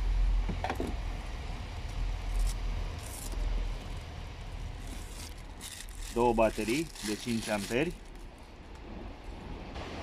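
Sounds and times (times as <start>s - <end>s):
papers rustling: 4.8s - 8.2s.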